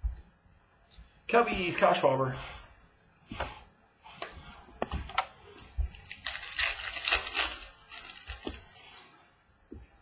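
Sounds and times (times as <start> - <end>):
wrapper tearing and crinkling: 6.0 - 8.7.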